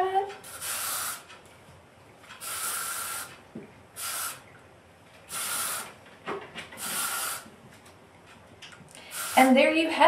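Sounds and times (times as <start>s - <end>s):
aerosol spray hissing: 0.4s - 1.2s, 2.4s - 3.3s, 4.0s - 4.4s, 5.3s - 5.9s, 6.8s - 7.5s, 9.1s - 9.6s.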